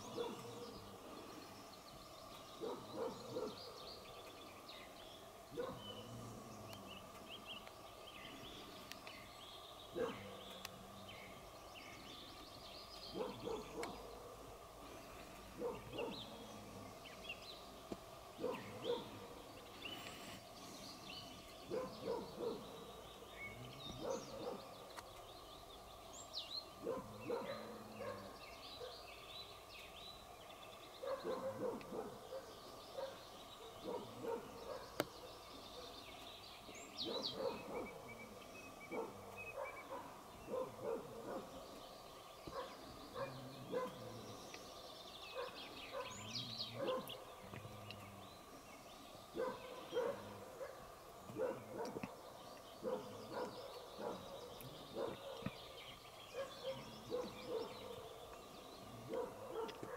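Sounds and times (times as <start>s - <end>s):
dog barking: 0.2s - 0.6s, 2.6s - 3.6s, 5.6s - 5.8s, 10.0s - 10.3s, 13.1s - 14.0s, 15.6s - 16.2s, 18.4s - 19.1s, 21.7s - 22.7s, 24.0s - 24.6s, 26.8s - 28.9s, 31.0s - 33.2s, 33.8s - 35.1s, 37.0s - 38.0s, 38.9s - 41.6s, 42.5s - 44.2s, 45.4s - 47.2s, 49.4s - 50.8s, 51.4s - 52.2s, 52.8s - 55.5s, 56.3s - 58.1s, 59.1s - 59.9s
bird chirps and calls: 26.1s - 59.9s.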